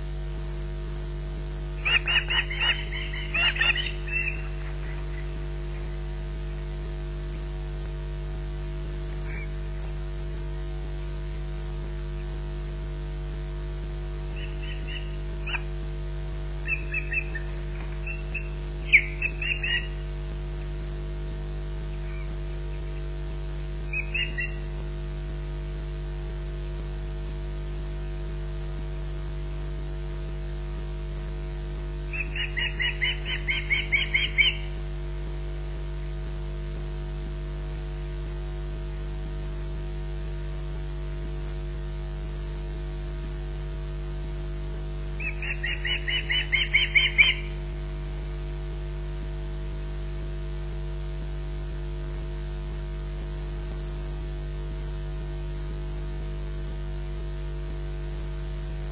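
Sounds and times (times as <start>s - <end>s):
steady electrical hum: 0.0s - 58.9s
osprey alarm calls: 1.8s - 6.0s, 9.2s - 9.6s, 14.3s - 15.7s, 16.6s - 20.0s, 22.0s - 22.8s, 23.9s - 24.7s, 32.1s - 34.8s, 45.2s - 47.8s.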